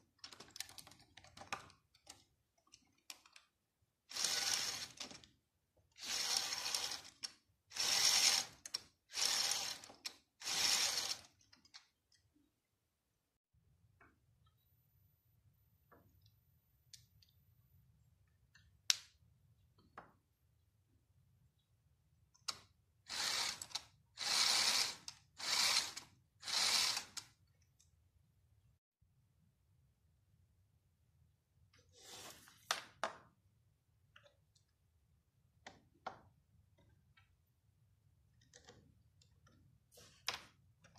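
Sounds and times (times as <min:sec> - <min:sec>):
plastic gears whirring: 0:04.1 - 0:05.3, 0:06.0 - 0:11.9, 0:22.5 - 0:27.4.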